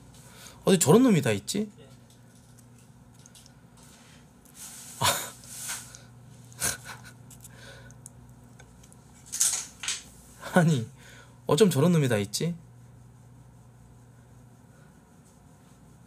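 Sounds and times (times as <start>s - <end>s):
man chuckling: 5.0s - 5.4s, 6.5s - 7.3s.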